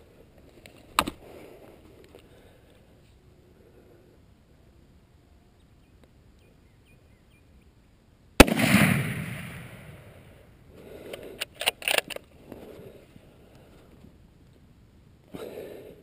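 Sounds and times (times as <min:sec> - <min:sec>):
rifle shot: 0:08.4 - 0:10.4
rifle handling clicks: 0:11.1 - 0:12.3.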